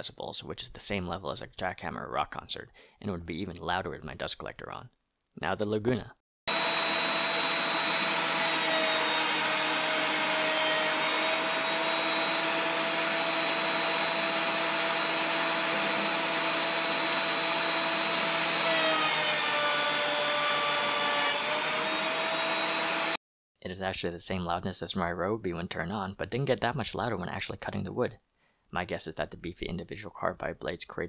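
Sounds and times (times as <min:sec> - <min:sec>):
thickness planer planing a board: 0:06.5 - 0:23.2.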